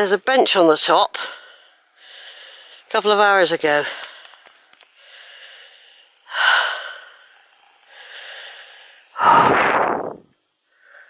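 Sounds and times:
person breathing heavily: 1.2 - 2.9, 3.9 - 9.9.

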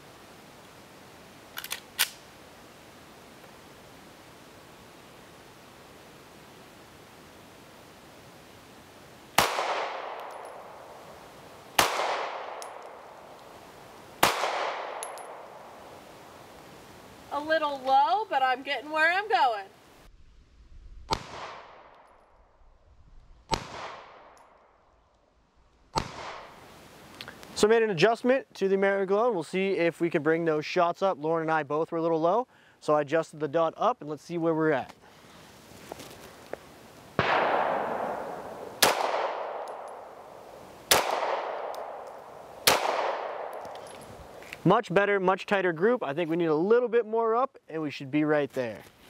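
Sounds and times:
pistol shots with echo: 9.4 - 10.9, 11.8 - 13.2, 14.2 - 15.7, 37.2 - 40.2, 40.9 - 43.7.

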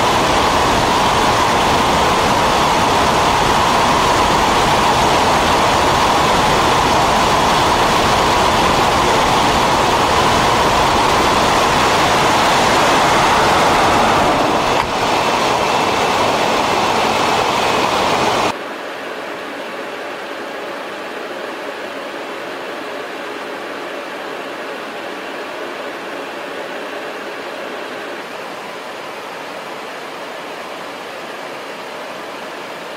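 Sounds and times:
aircraft hum: 0.0 - 18.5
rush of air through open bay: 0.0 - 18.6.

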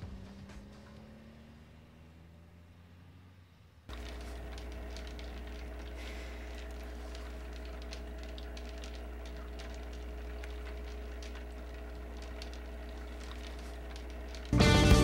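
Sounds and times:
faint steady tones: 0.0 - 15.0
low electrical hum: 3.4 - 15.0
faint clicks and crackles: 3.9 - 15.0.

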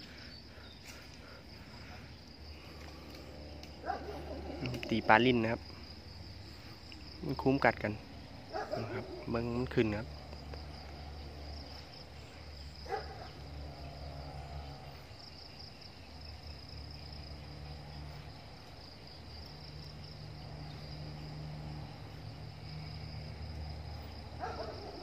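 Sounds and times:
insects buzzing: 0.0 - 25.0.

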